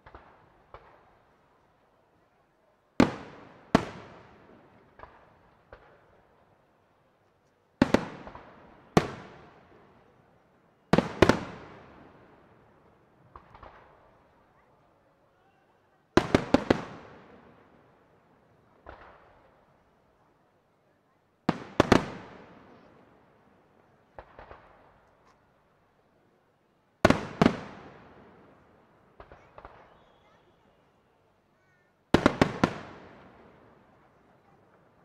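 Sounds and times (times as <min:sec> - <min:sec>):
firework bangs echoing: 0:21.5 - 0:22.6, 0:24.1 - 0:24.9, 0:27.1 - 0:28.6, 0:29.2 - 0:30.5, 0:32.1 - 0:33.6.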